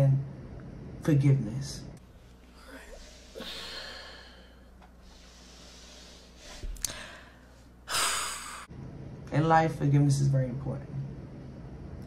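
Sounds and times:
person sighing: 2.6 - 4.7, 6.8 - 8.7.

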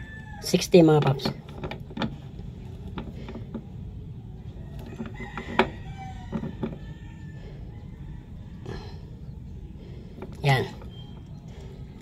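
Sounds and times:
chickens and rooster: 0.0 - 0.6, 4.4 - 9.4.

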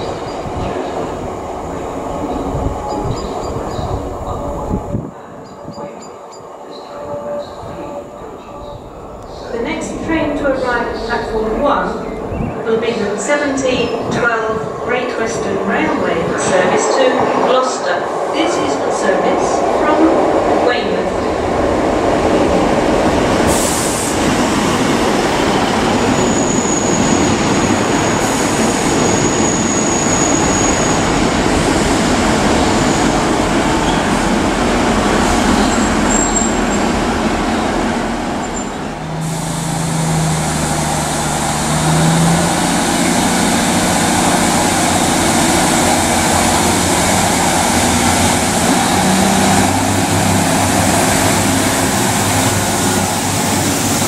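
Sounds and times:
train wheels and diesel engines: 0.0 - 54.0
high brake squeal: 26.1 - 27.4, 28.4 - 31.0, 35.6 - 36.8.

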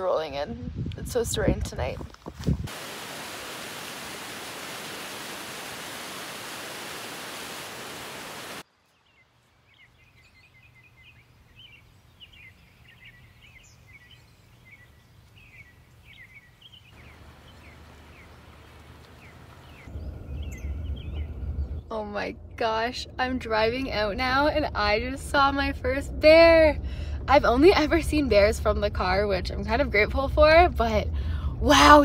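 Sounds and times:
cascade rushing over rocks: 2.6 - 8.6
small birds chirping: 8.5 - 22.8.

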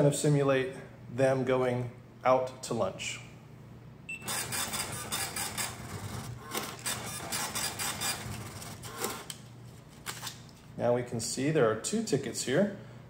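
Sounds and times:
short beep: 4.1 - 4.4
ticket printer printing: 4.1 - 9.4.

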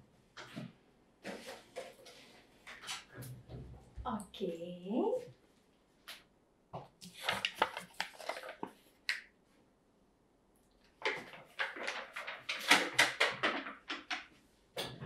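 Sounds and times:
foil tray crinkling and clattering: 7.1 - 8.8, 11.0 - 14.3.

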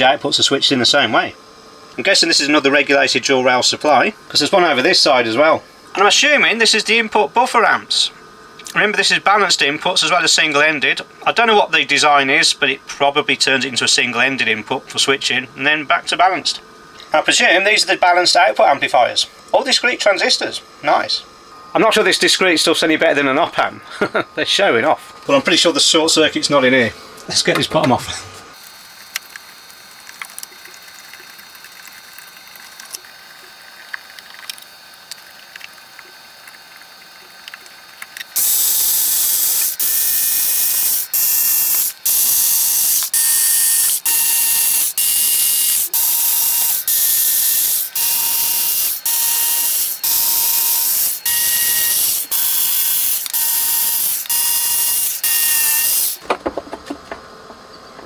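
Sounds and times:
electric screwdriver whirring: 37.5 - 56.2.

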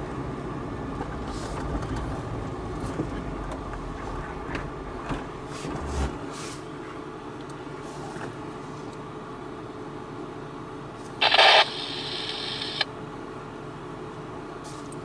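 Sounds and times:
faint hiss: 11.2 - 12.8
loud noisy burst: 11.2 - 12.8.

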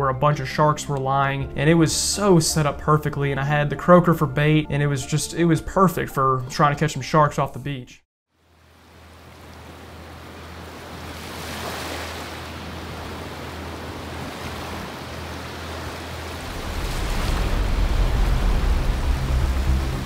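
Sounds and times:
ocean surf on a beach: 8.6 - 20.0
deep low rumble: 16.4 - 20.0.

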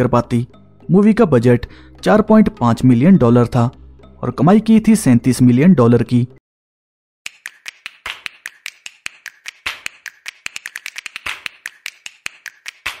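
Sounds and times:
sharp snapping clicks: 7.3 - 13.0.

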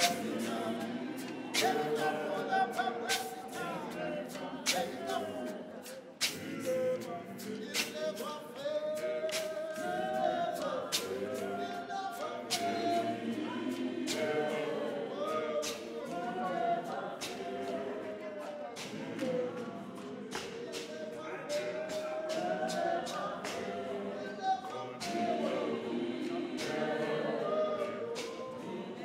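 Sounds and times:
sharp percussive beat: 0.0 - 11.6, 12.4 - 16.6
choir singing a hymn: 0.0 - 29.0.

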